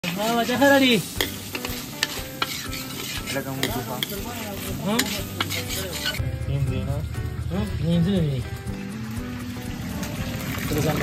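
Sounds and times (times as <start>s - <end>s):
food sizzling in a pan: 0.0s - 6.2s, 8.1s - 11.0s
metal ladle knocking a pan: 1.2s - 4.2s.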